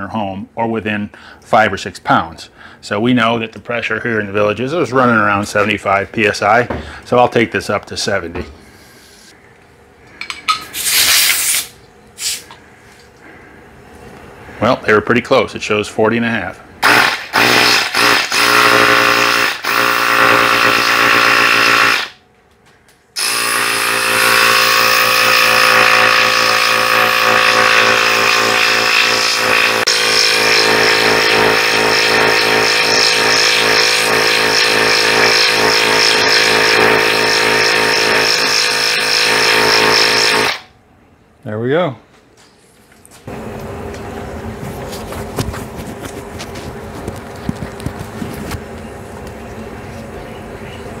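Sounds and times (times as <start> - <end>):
small air compressor running: 16.8 - 22.2, 23.2 - 40.7.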